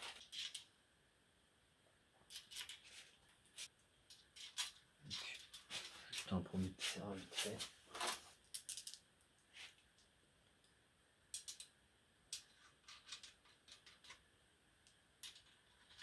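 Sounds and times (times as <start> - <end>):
metal nuts and washers clicking: 11.3 - 11.7.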